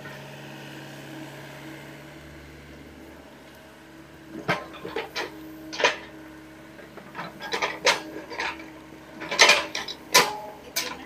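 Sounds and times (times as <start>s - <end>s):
excavator engine running: 0.0s - 11.0s
excavator bucket clanking: 4.3s - 11.0s.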